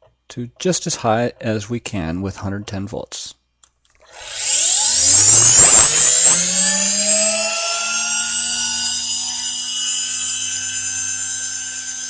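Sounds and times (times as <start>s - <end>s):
motor whine rising in pitch: 4.1s - 12.0s.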